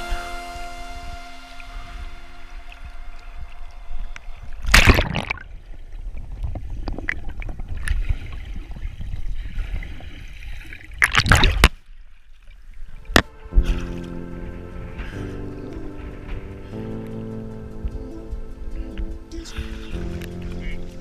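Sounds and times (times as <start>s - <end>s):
loud water splashing: 0.0s - 6.2s, 7.1s - 11.8s, 13.1s - 16.8s
low rumble of water: 0.0s - 21.0s
river water sloshing and gurgling: 2.7s - 16.7s.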